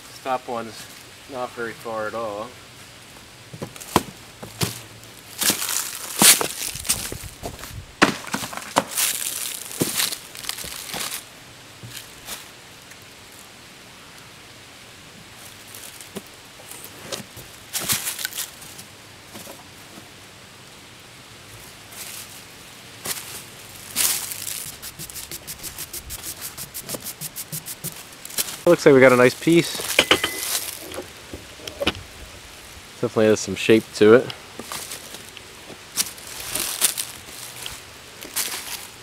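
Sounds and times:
hand brush sweeping sawdust: 0:24.0 - 0:29.9.

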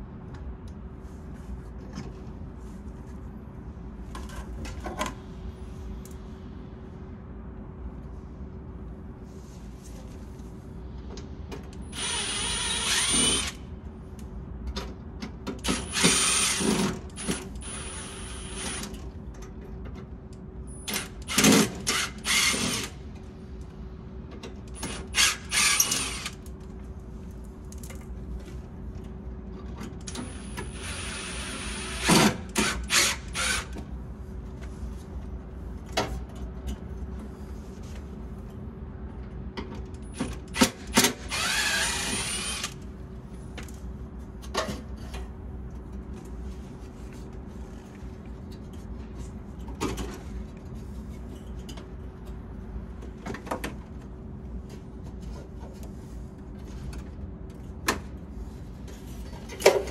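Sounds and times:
steady low hum: 0:00.0 - 0:15.5.

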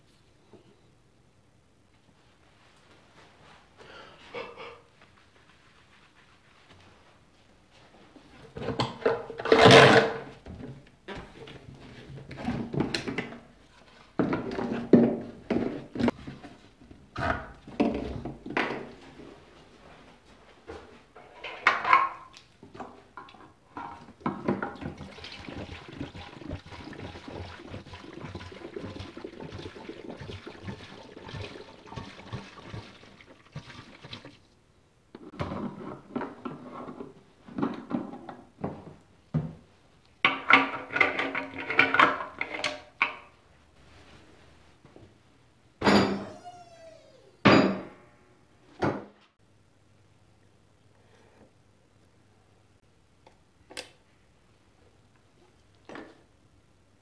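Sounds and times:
fuel pouring into tank: 0:24.6 - 0:34.5.

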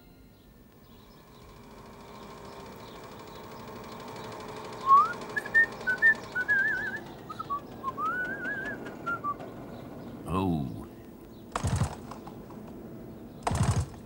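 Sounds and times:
person whistling a tune: 0:04.8 - 0:09.4.

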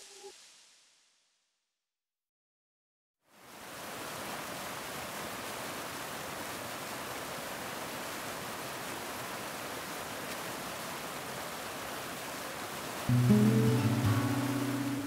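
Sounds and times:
water rushing: 0:03.3 - 0:15.0.

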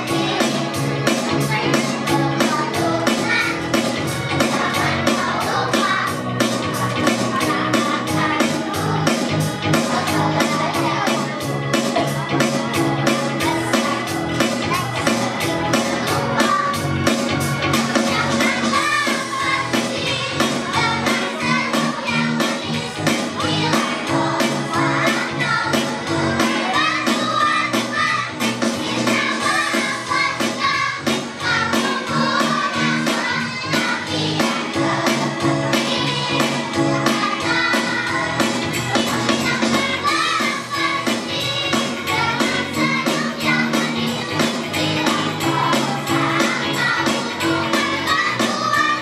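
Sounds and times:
children singing: 0:00.0 - 0:49.0
music with steady beat: 0:00.0 - 0:49.0
pop backing track: 0:00.0 - 0:49.0.

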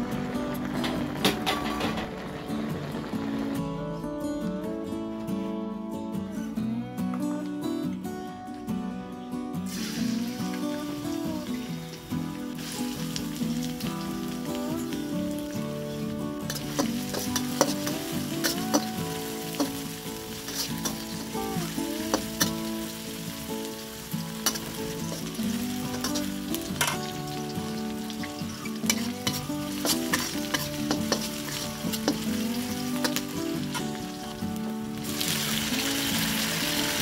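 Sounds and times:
onion and garlic sizzling in oil: 0:00.0 - 0:03.6, 0:09.7 - 0:37.0
metal spatula scraping wok: 0:00.6 - 0:03.5, 0:15.4 - 0:34.4.

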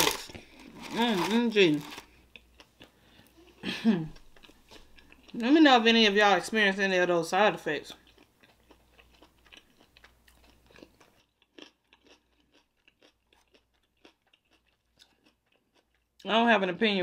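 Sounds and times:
chewing crunchy food: 0:00.0 - 0:05.5, 0:07.9 - 0:16.3.

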